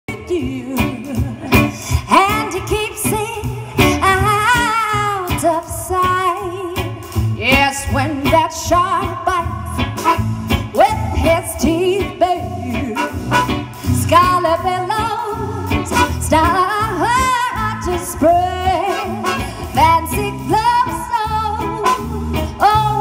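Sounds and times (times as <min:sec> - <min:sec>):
swing band playing: 0:00.1 - 0:23.0
woman singing: 0:00.1 - 0:23.0.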